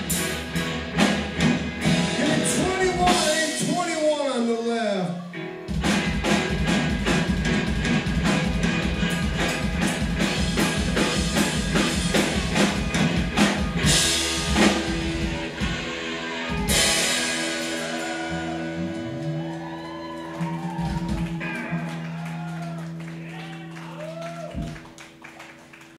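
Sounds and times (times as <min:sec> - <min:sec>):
live rock band playing: 0:00.0 - 0:25.9.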